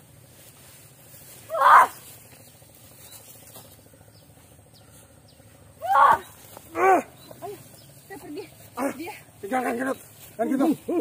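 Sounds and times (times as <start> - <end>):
low outdoor background: 0.0 - 11.0
person shouting: 1.5 - 2.0, 5.8 - 7.2.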